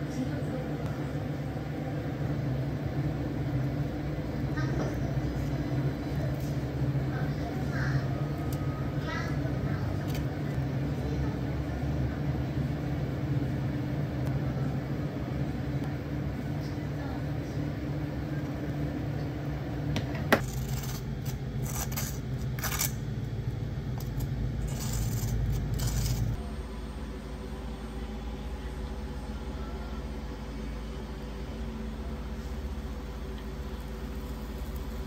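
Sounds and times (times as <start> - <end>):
cafe equipment hum: 0.0 - 35.0.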